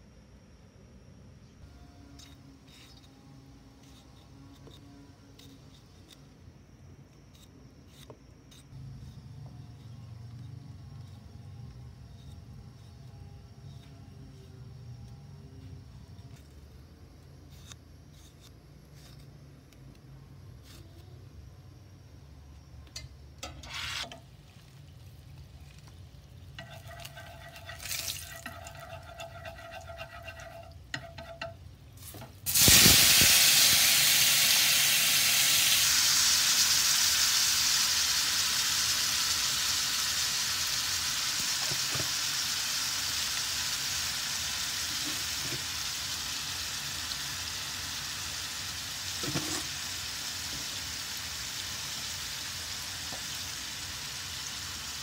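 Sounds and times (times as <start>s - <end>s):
faint steady hum: 0.0s - 55.0s
tomatoes sizzling in hot oil: 23.4s - 55.0s.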